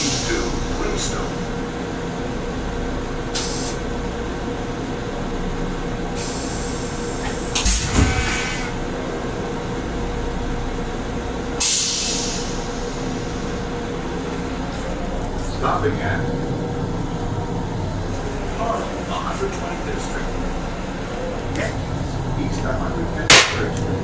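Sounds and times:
ventilation hum: 0.0s - 24.0s
hissing air rush: 11.5s - 13.5s.

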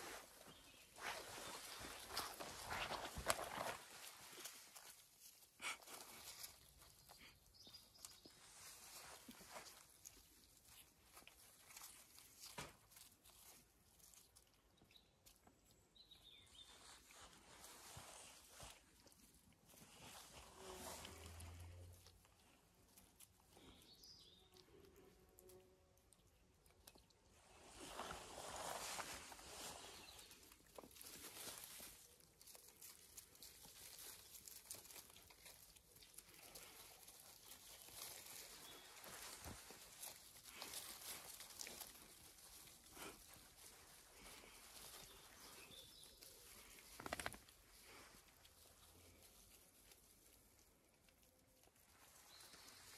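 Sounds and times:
puppies chewing a stick: 1.7s - 17.1s, 18.4s - 27.6s, 29.9s - 52.7s
bird chirp: 14.8s - 17.3s, 23.6s - 24.6s, 45.0s - 47.2s
small clicks and scrapes: 46.5s - 48.1s.

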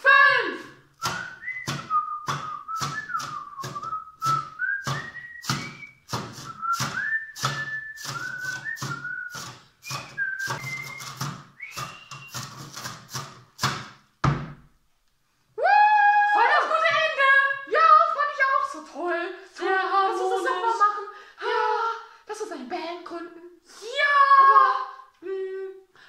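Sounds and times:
whistled tune with sliding notes: 1.0s - 12.9s
knocks on makeshift drum: 1.0s - 14.7s.

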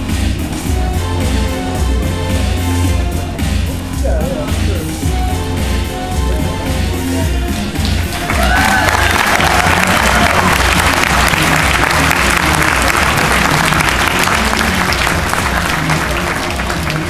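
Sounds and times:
audience applauding: 6.7s - 17.0s.

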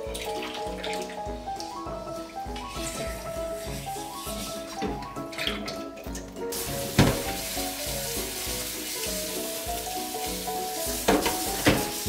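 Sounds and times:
background music: 0.0s - 12.0s
tap water running onto pan: 0.0s - 12.0s
pan knocking against sink: 2.5s - 5.8s, 6.6s - 8.4s, 10.2s - 12.0s.

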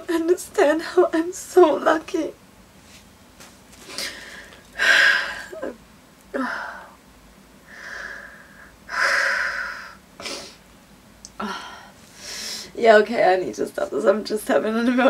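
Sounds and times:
woman crying: 4.8s - 5.8s.

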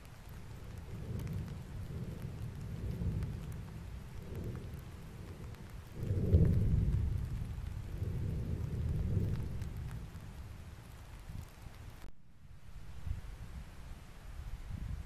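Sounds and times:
volcano rumbling: 0.0s - 11.6s.

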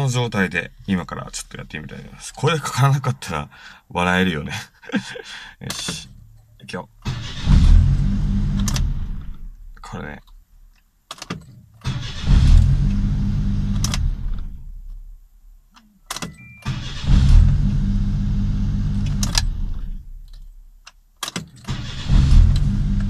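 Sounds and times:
car engine starting: 7.0s - 9.9s, 11.7s - 23.0s
car engine running: 16.9s - 20.2s, 22.0s - 23.0s.

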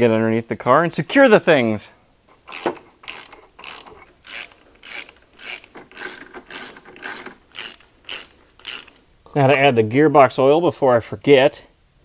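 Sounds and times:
ratchet wrench clicking: 2.5s - 9.0s.

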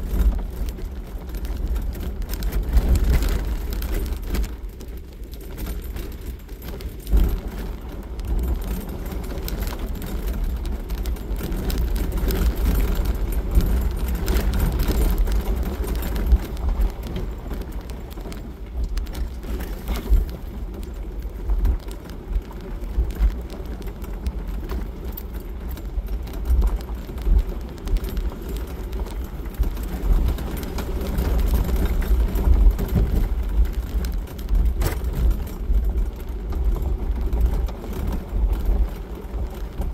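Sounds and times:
engine and tyres on gravel: 0.0s - 39.9s
small rattles and knocks: 0.0s - 39.9s.

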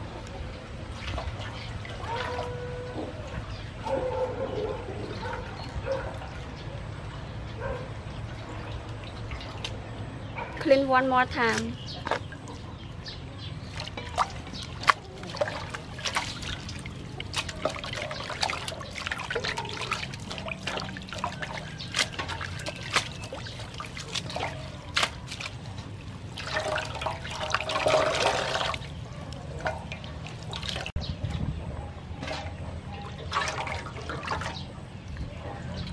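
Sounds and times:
water dripping: 13.6s - 31.0s
hands swishing seaweed in water: 13.7s - 30.9s.

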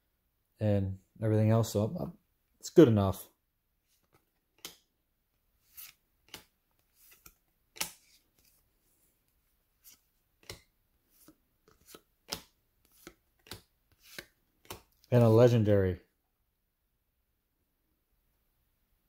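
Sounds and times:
trading cards snapping and sliding: 4.0s - 4.9s, 5.6s - 8.6s, 9.8s - 15.4s.

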